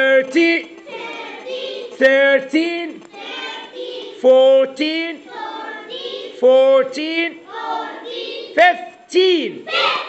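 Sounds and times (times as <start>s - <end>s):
children chanting in unison: 0.8s - 2.4s, 3.1s - 8.9s, 9.5s - 10.0s.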